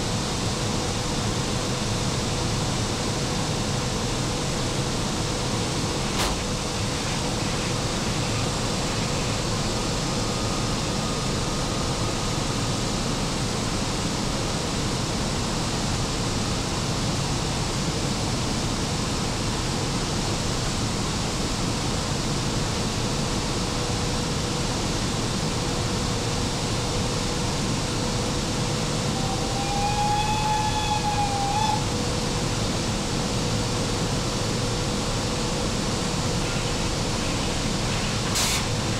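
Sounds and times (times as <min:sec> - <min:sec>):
faint constant whine: 0:00.0 - 0:38.9
high wavering tone: 0:29.0 - 0:31.9.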